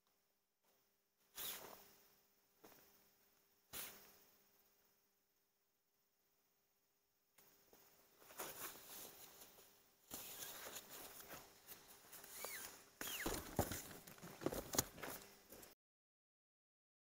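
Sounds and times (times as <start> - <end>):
tent fabric rustling: 1.3 - 2.1, 7.8 - 15.8
short high sliding whistles: 1.4 - 1.8, 12.3 - 13.3
tent poles knocking and clicking: 12.3 - 15.2.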